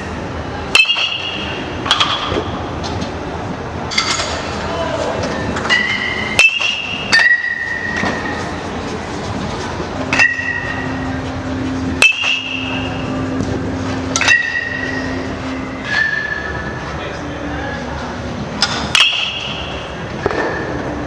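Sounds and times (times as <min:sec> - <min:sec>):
steady low hum: 0:00.0 - 0:21.0
metal bat striking baseballs: 0:00.7 - 0:02.6, 0:03.9 - 0:04.5, 0:05.6 - 0:08.6, 0:10.1 - 0:11.0, 0:11.9 - 0:13.4, 0:14.0 - 0:16.7, 0:18.6 - 0:20.9.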